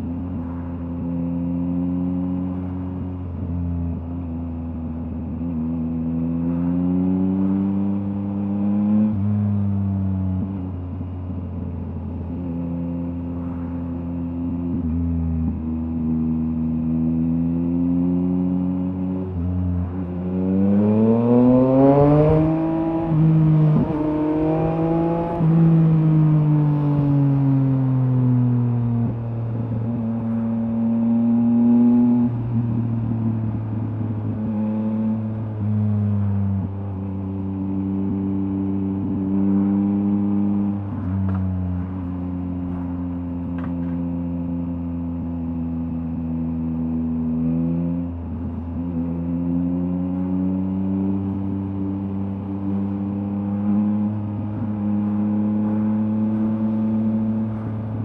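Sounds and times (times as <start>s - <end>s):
motorcycle engine revving: 16.1s - 58.0s.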